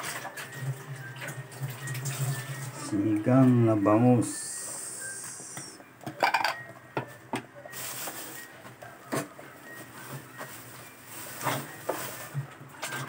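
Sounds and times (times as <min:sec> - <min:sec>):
kitchenware knocking and clinking: 0:06.1 - 0:07.4.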